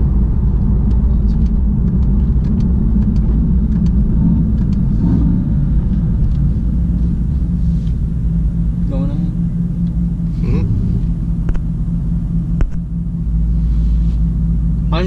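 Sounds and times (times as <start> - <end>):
car engine and road rumble: 0.0 - 15.0
light irregular ticks: 0.8 - 4.8.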